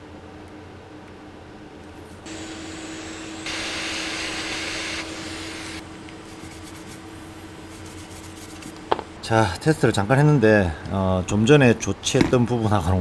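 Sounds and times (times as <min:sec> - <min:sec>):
blower rushing air: 0:02.3 - 0:05.8.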